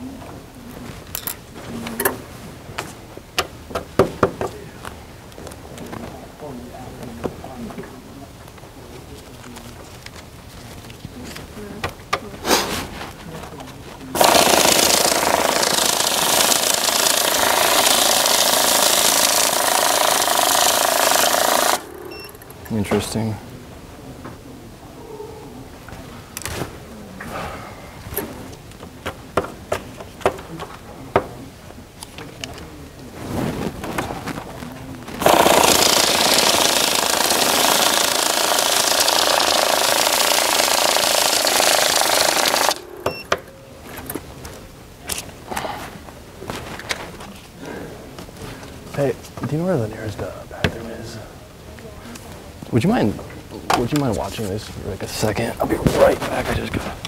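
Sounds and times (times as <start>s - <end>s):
banknote counting machine rattling: 14.2s - 22.6s, 35.2s - 43.2s.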